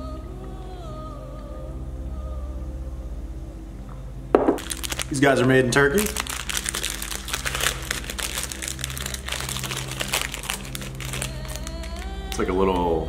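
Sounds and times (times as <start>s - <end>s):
plastic wrapper crinkling: 4.4s - 12.4s.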